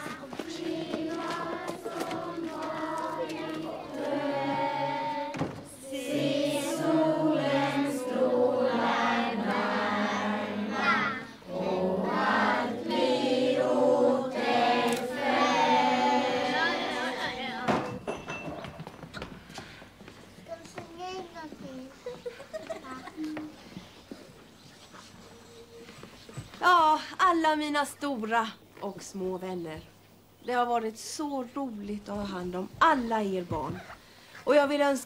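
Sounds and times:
children and adults singing: 0.0 - 18.1.

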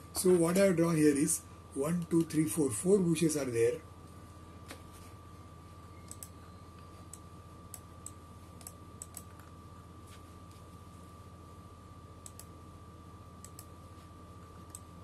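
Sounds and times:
faint electrical hum: 0.0 - 15.0
computer mouse clicks: 6.0 - 6.4, 7.1 - 9.5, 12.2 - 12.5, 13.4 - 13.7, 14.6 - 14.9.

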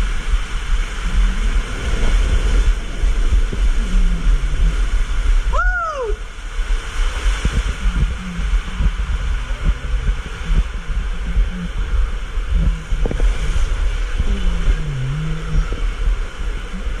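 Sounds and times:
heavy rumble in slide tube: 0.0 - 17.0
water rushing: 0.0 - 17.0
wavering low tones and knocks: 7.3 - 17.0.

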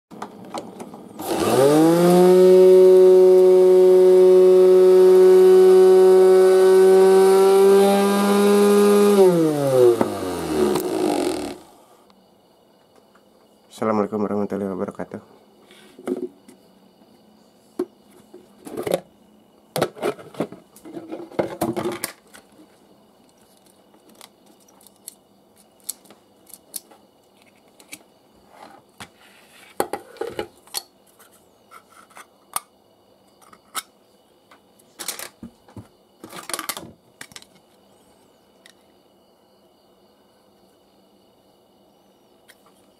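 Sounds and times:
clicks and knocks of handled parts: 23.2 - 28.0, 36.2 - 37.7.

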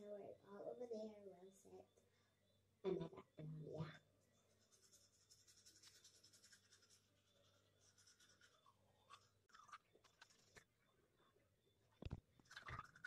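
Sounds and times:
toothbrush scrubbing teeth: 4.5 - 10.7, 12.5 - 13.0.

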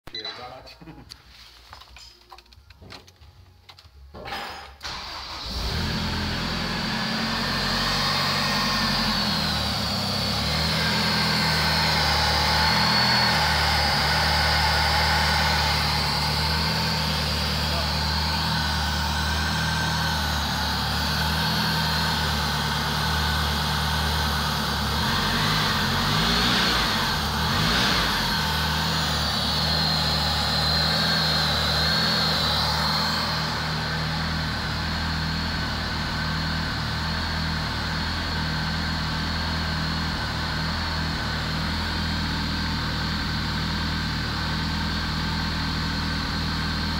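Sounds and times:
car engine idling: 4.8 - 46.9.

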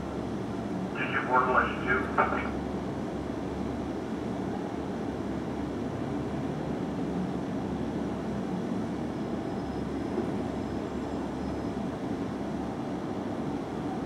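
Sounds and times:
distant traffic rumble: 0.9 - 2.6.

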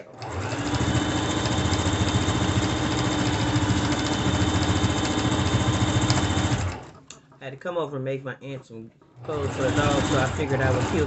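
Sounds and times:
electric sewing machine running: 0.0 - 7.0, 9.2 - 11.0.

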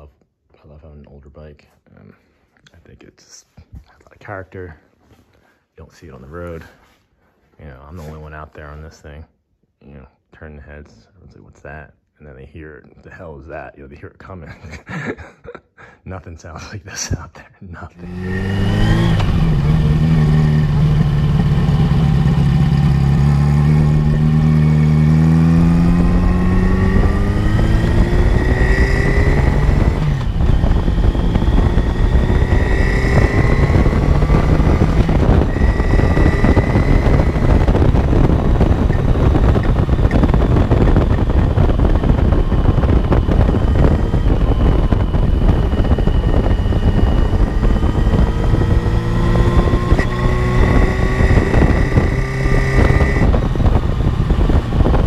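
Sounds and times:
motorcycle engine accelerating: 18.0 - 55.0
wind noise on microphone: 18.0 - 55.0.

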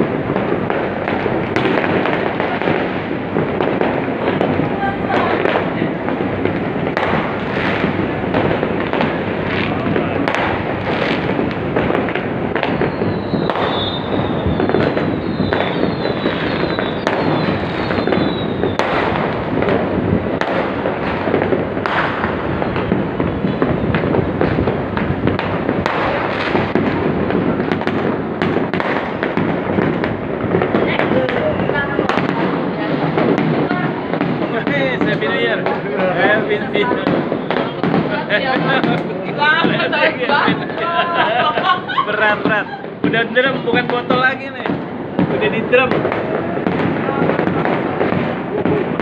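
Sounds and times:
fireworks crackling and popping: 0.0 - 49.0
sharp firework bangs: 0.0 - 49.0
high falling whistles: 12.7 - 18.8.

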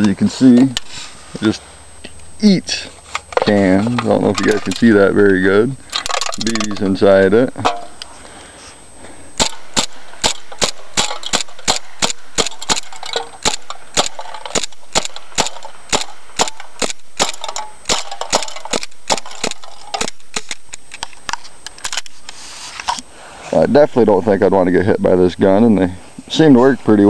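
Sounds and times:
airsoft pistol shots: 9.4 - 20.8.

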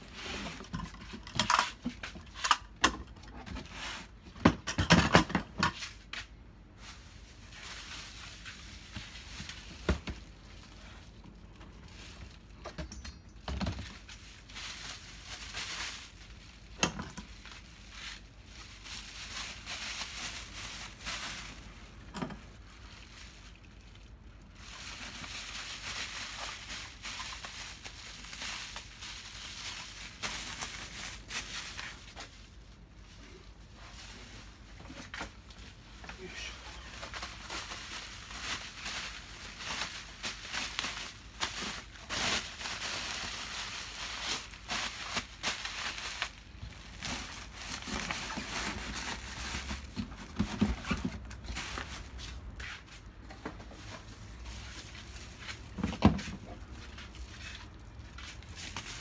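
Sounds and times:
bubble wrap crinkling: 5.8 - 12.7, 13.6 - 59.0.

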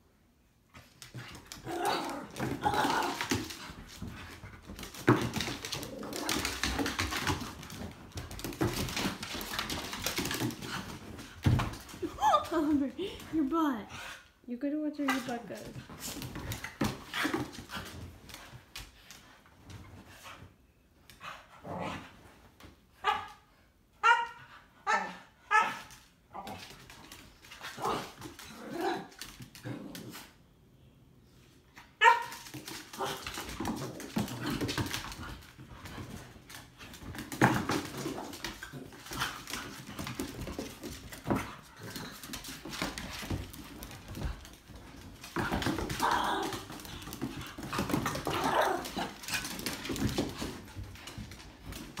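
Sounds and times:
dogs scuffling on wooden floor: 0.7 - 13.5, 15.0 - 20.5, 32.0 - 52.0.

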